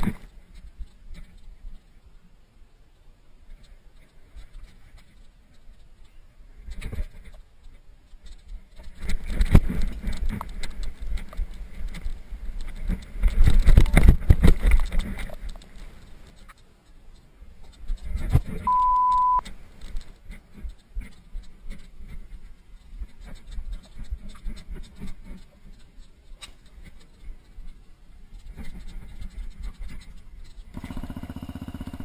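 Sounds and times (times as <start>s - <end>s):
wind buffeting microphone: 3.4s - 16.5s
electronic beep: 18.6s - 19.4s.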